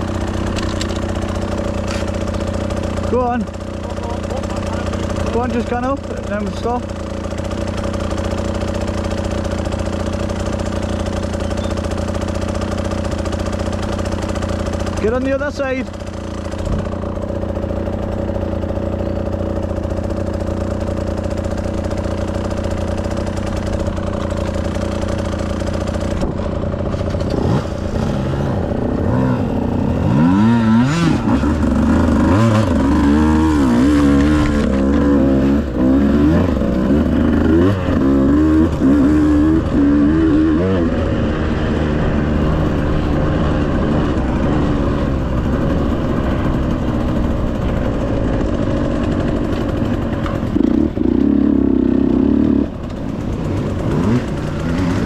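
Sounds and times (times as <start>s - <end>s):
vehicle engine revving: 21.8s - 55.0s.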